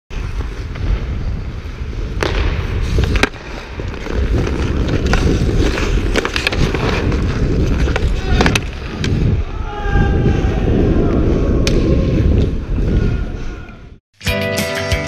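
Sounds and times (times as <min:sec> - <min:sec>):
skates scraping ice: 0:00.1 - 0:09.5
wind rumble: 0:00.1 - 0:14.0
stick and puck clacks: 0:02.2 - 0:09.3.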